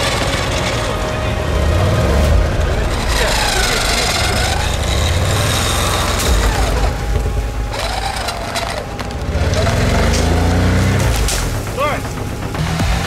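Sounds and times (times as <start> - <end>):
off-road engine revving: 0.0 - 13.0.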